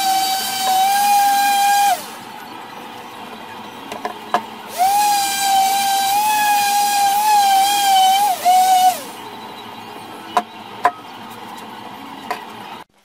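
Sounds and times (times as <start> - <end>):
orbital sander whining: 0.0 - 2.3, 4.7 - 9.3.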